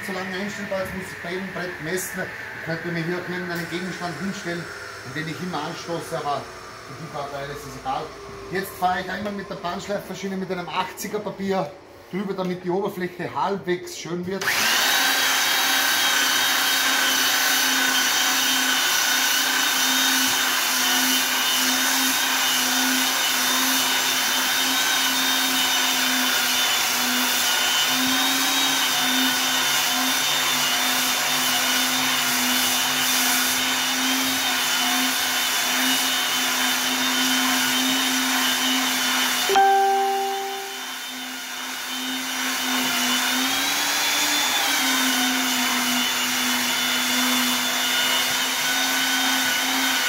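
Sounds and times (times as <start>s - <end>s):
belt sander motor whine: 0.1s - 10.7s, 14.4s - 18.4s
sanding belt hissing on wood: 15.7s - 39.5s.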